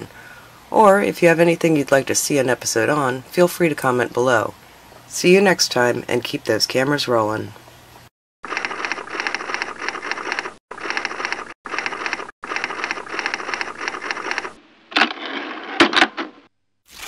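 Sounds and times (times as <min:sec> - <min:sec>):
rapid mechanical clattering: 0:08.4 - 0:14.6.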